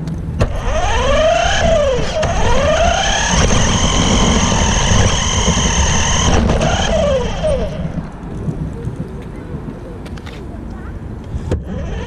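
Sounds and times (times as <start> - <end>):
tyres rumbling on pavement: 0.0 - 12.0
rc car motor whining: 0.4 - 8.0.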